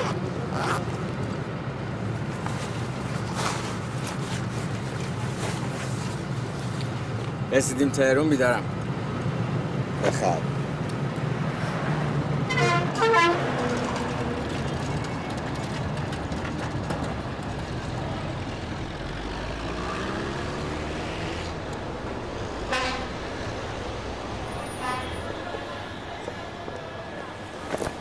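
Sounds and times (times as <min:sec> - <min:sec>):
bus engines running: 0:00.0 - 0:28.0
vehicle horn toots: 0:12.5 - 0:13.5, 0:22.6 - 0:23.2, 0:24.5 - 0:25.6.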